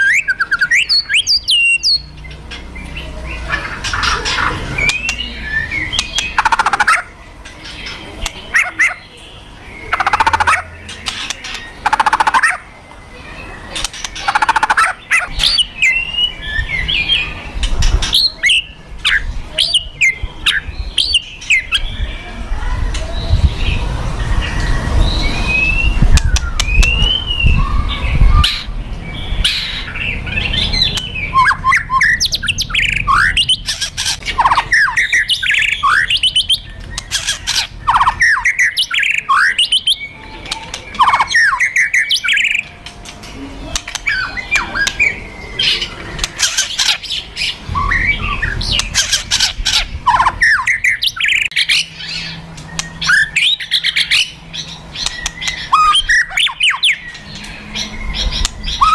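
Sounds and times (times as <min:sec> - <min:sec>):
rapid whistled bird notes: 0:24.3 - 0:28.7.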